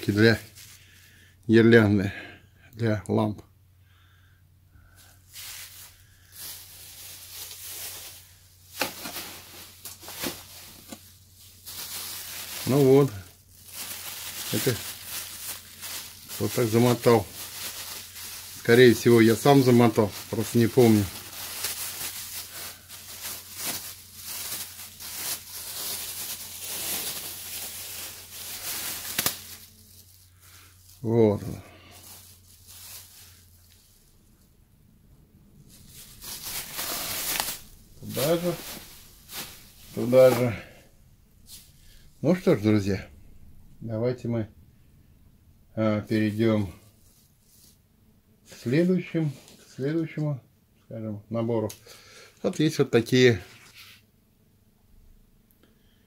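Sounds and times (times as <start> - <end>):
plastic bags crinkling: 4.9 - 34.4, 35.6 - 42.7.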